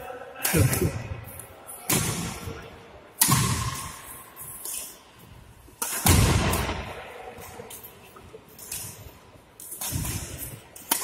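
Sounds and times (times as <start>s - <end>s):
loud echoing thumps: 6.0s - 7.0s.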